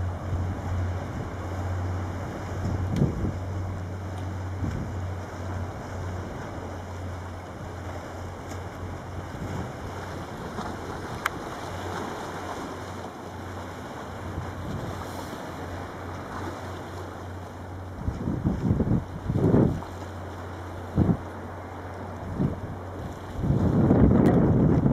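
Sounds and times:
wind on microphone: 0.0 - 12.7, 17.8 - 24.9
ferry engine low hum: 0.0 - 24.9
rush of boat wake: 0.0 - 24.9.

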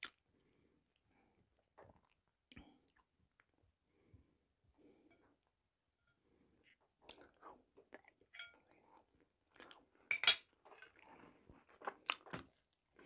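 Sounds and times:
chewing and mouth sounds: 7.0 - 9.9, 10.6 - 13.0.

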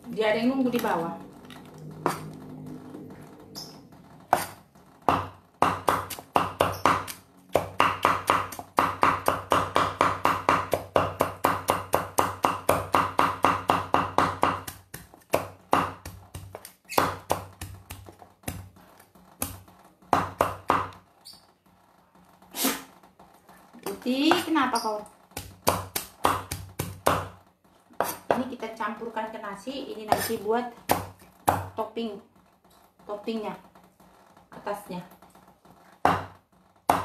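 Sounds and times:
cleaver chopping on board: 4.3 - 18.7, 25.4 - 27.3, 36.0 - 37.0.

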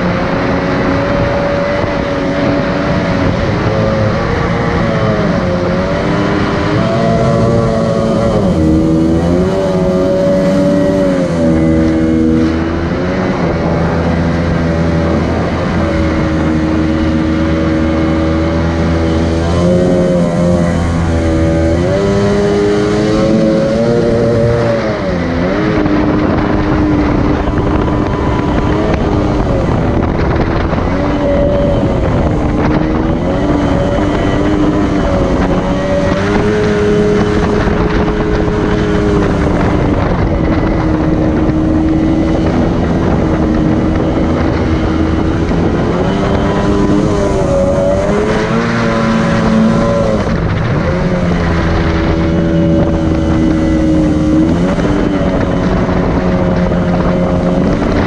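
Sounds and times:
outboard motor running: 0.0 - 58.0.

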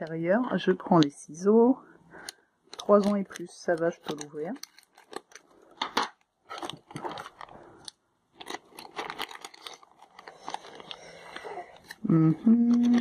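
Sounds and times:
plastic packet crinkling: 2.7 - 13.0.

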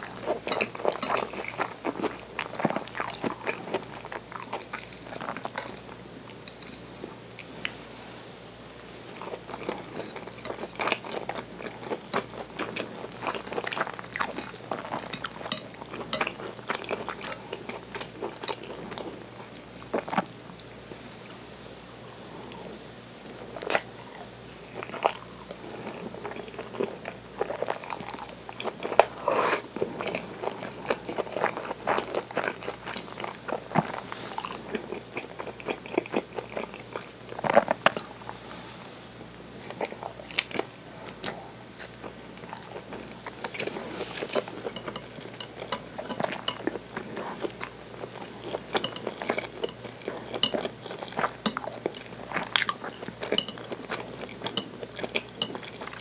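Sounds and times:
biting and chewing food: 22.3 - 38.2, 39.6 - 56.0.

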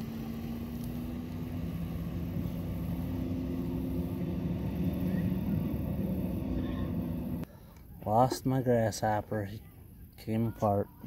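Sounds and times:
motorboat engine humming: 0.0 - 8.3.

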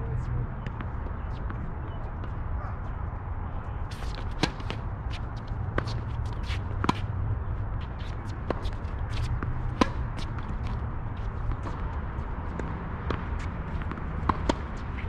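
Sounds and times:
tennis shoes scuffing on court: 3.8 - 7.2, 7.8 - 15.0
tennis ball struck by racquets: 3.9 - 7.1, 8.0 - 10.8, 12.5 - 14.8.

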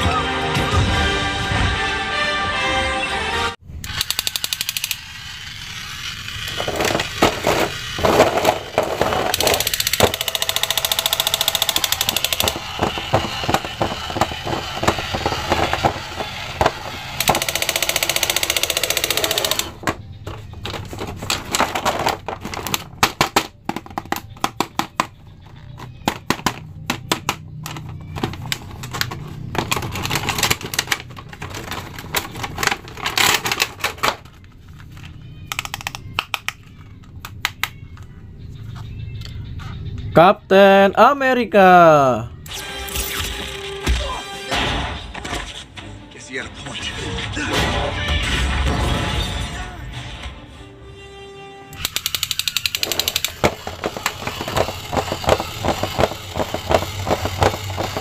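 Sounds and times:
sharp plastic clicks: 3.8 - 5.0, 9.0 - 16.0, 16.6 - 20.0, 35.4 - 38.0, 51.8 - 58.0.

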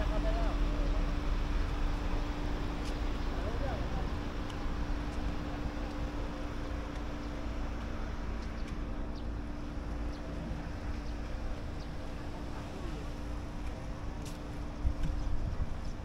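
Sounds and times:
low mechanical motor hum: 0.0 - 16.0
wind rumbling on microphone: 14.1 - 16.0.

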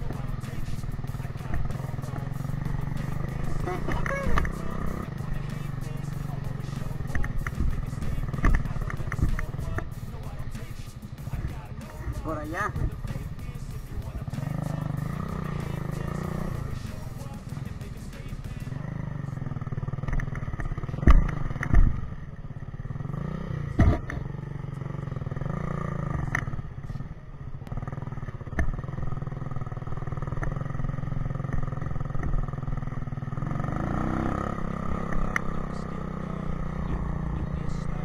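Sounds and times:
motorcycle engine at low speed: 0.0 - 38.0
bike knocking over bumps: 7.1 - 9.9.

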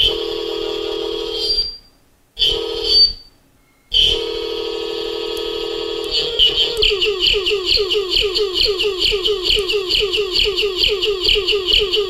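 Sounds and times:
buzzy electronic tone: 5.3 - 12.0.

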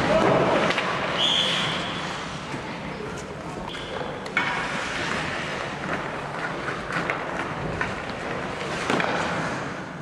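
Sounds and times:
skates scraping on ice: 0.0 - 10.0
stick and puck clicks: 5.8 - 9.6.

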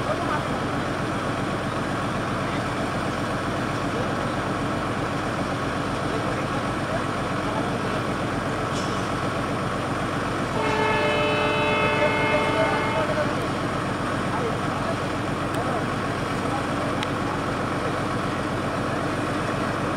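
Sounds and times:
diesel locomotive engine rumbling: 0.0 - 19.9
train horn chord: 10.6 - 13.5.

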